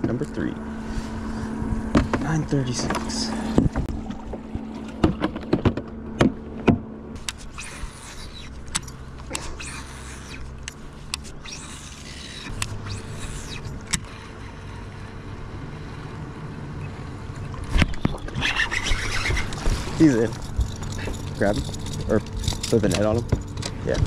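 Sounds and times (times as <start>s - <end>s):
fishing reel spool whirring: 7.2s - 23.6s.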